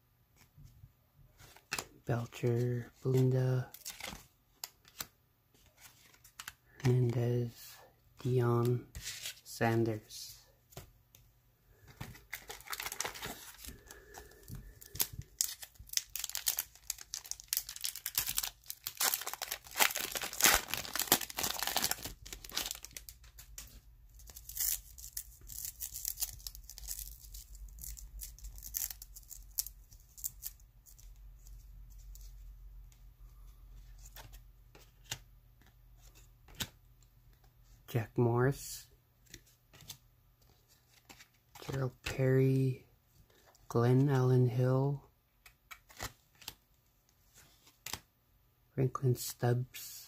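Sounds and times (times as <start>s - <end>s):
cards being handled: 1.4s - 7.6s, 11.8s - 37.5s, 39.2s - 42.2s, 45.4s - 48.0s
wrapper tearing and crinkling: 12.2s - 14.1s, 14.7s - 23.2s, 24.2s - 30.6s.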